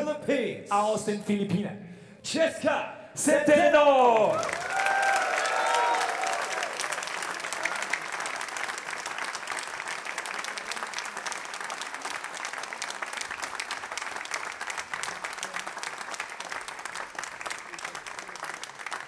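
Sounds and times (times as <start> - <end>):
audience applauding: 4.1 - 19.0.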